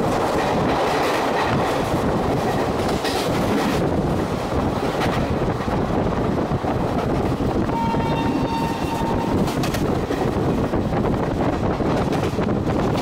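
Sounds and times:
train wheels rumbling: 0.0s - 13.0s
train horn: 7.6s - 9.6s.

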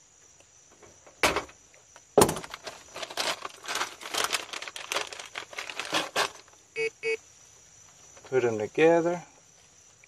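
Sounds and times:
wires crinkling and clicking: 2.4s - 6.6s.

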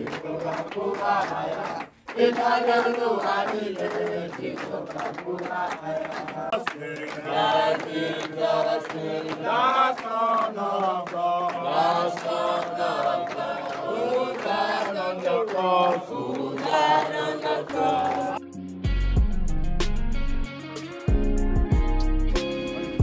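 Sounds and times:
young voices singing in chorus: 0.0s - 18.4s.

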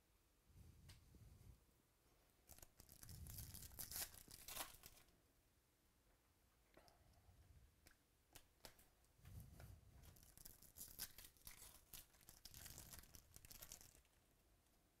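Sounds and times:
foil wrapper crinkling and tearing: 2.5s - 5.1s, 10.0s - 14.2s.

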